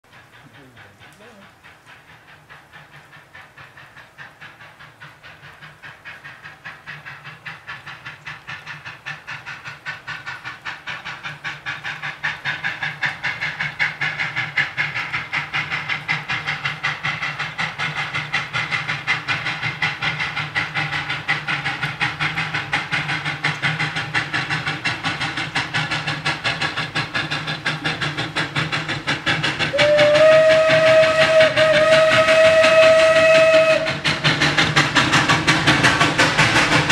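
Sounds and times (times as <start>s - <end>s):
steam locomotive chuffing: 0.0s - 36.9s
steam whistle: 29.7s - 34.0s.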